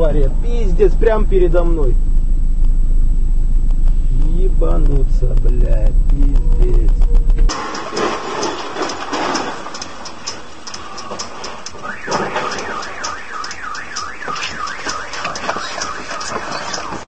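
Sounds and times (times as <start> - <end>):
car alarm wailing: 11.6 - 17.0.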